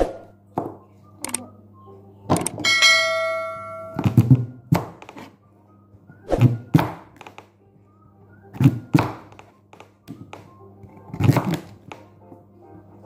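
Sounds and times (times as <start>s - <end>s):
ringing chime: 2.6s - 4.2s.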